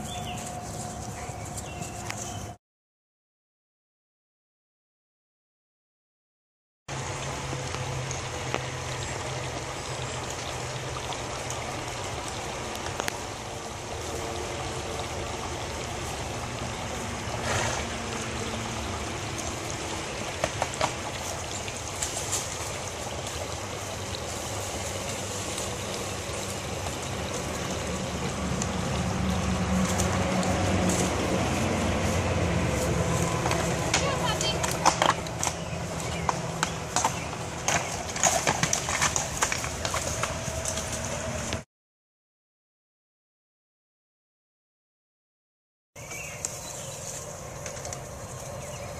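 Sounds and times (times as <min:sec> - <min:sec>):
creek running over rocks: 0:06.9 - 0:41.6, 0:46.0 - 0:48.9.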